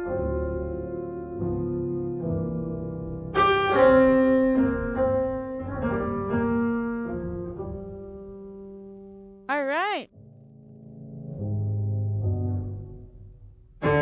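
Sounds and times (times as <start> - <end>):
slow piano chords: 0.0 - 9.4.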